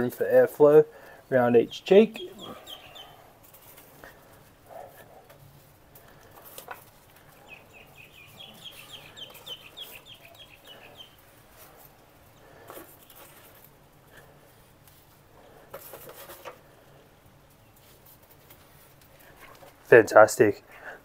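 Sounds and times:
bird chirping rapidly: 1.6s - 3.3s, 7.3s - 11.3s.

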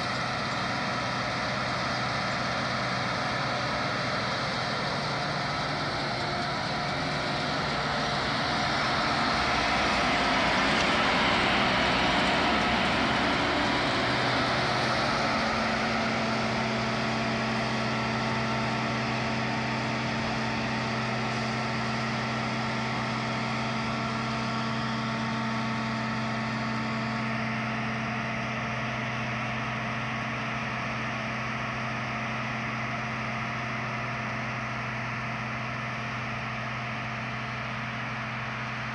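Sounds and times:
combine harvester engine hum: 0.0s - 38.9s.

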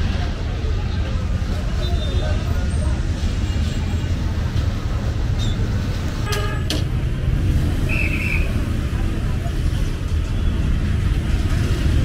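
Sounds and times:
road traffic: 0.0s - 12.0s
vehicle horn toot: 6.2s - 6.8s.

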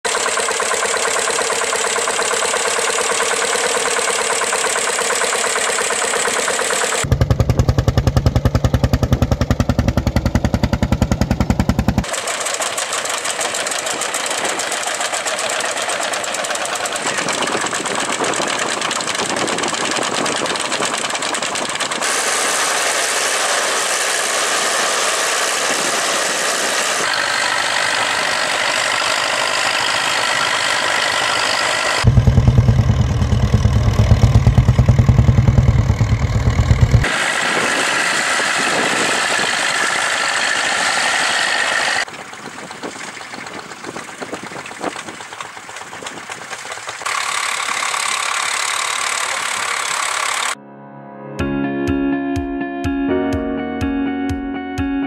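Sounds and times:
tractor engines running: 0.0s - 50.6s.

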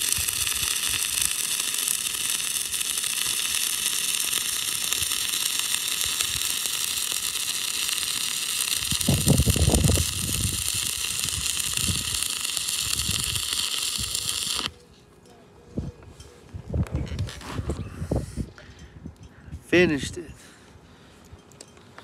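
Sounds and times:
welding arc burning: 0.0s - 14.8s.

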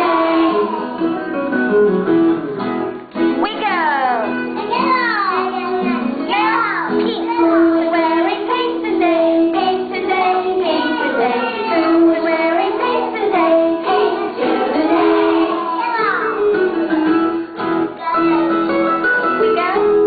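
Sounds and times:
children singing: 0.0s - 1.3s, 4.6s - 17.4s
music accompaniment: 0.0s - 20.0s.

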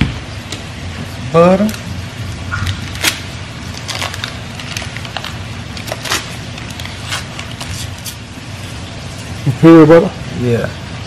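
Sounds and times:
grease popping and crackling: 1.6s - 8.2s.

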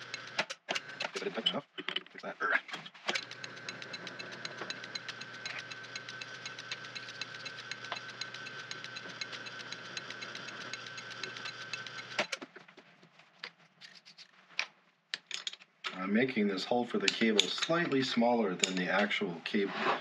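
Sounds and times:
fast even ticking: 0.0s - 1.3s, 3.1s - 12.4s
metal lathe drilling whine: 3.2s - 12.2s.

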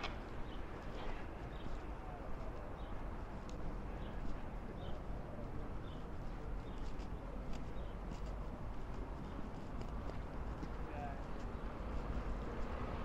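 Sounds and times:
footsteps on hard path: 6.1s - 13.0s.

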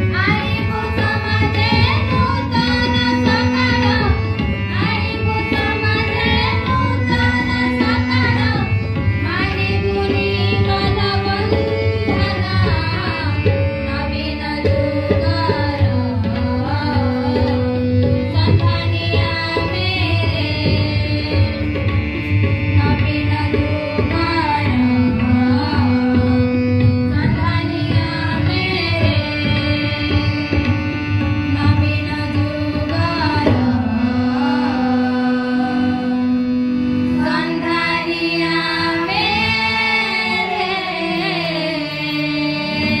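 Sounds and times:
girls singing into microphones: 0.0s - 43.0s.

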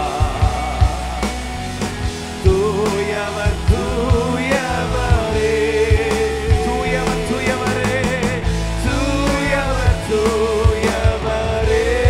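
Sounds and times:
person singing long notes: 0.0s - 1.6s
bass: 0.0s - 12.0s
drum beat: 0.0s - 12.0s.

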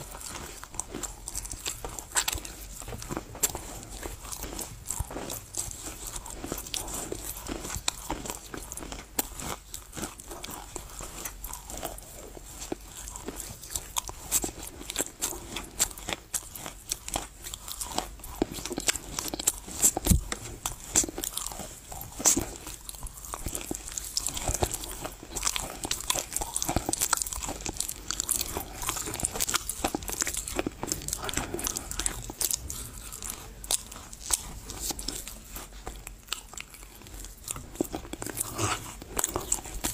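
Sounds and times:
chewing and crunching clay: 0.0s - 39.9s.

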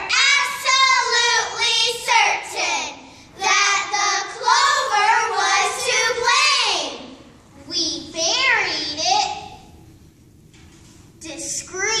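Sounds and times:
girls singing together: 0.0s - 7.1s.

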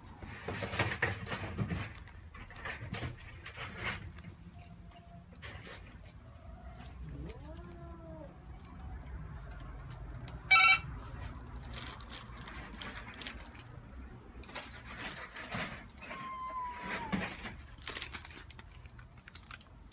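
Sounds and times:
rustling and handling noise: 0.0s - 19.9s
cat meowing: 7.0s - 8.5s, 16.0s - 17.3s.

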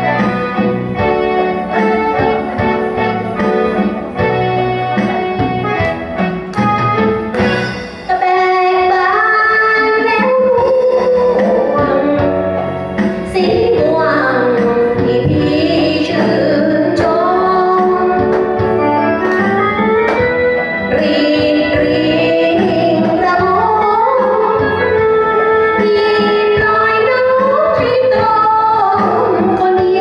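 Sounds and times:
backing music: 0.0s - 30.0s
woman singing into a microphone: 8.0s - 19.4s, 20.8s - 30.0s.

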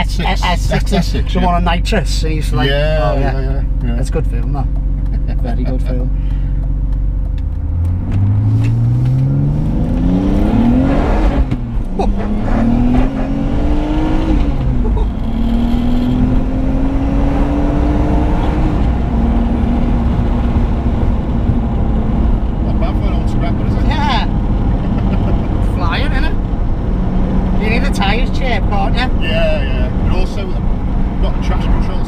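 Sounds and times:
car engine accelerating: 0.0s - 32.0s.

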